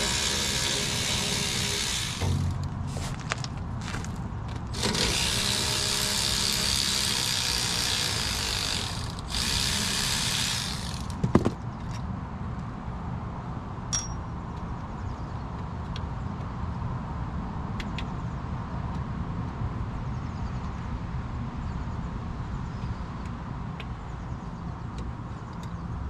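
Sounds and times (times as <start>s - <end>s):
cordless power tool running: 0.0s - 2.7s, 4.7s - 11.5s.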